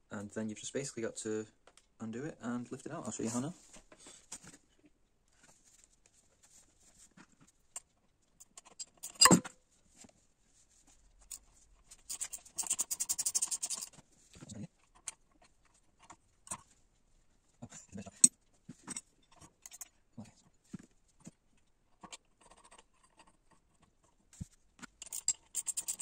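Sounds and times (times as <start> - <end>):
small metal clicks: 24.8 - 26.0.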